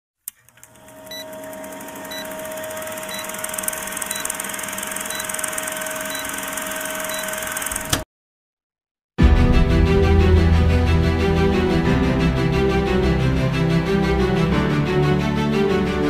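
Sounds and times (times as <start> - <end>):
film projector whirring: 0.3 - 8.0
short high beeps: 3.0 - 4.4, 5.1 - 6.4.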